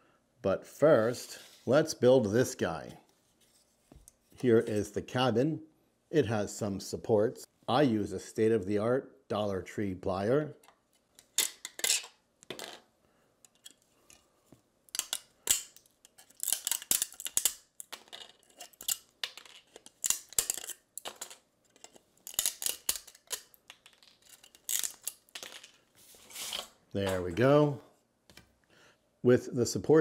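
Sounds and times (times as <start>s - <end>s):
pliers snapping plastic: 15.0s - 17.9s.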